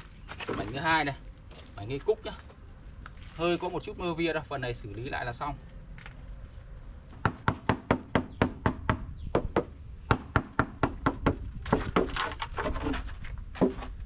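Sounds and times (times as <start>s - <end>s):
panel scraping off concrete: 11.6s - 14.0s.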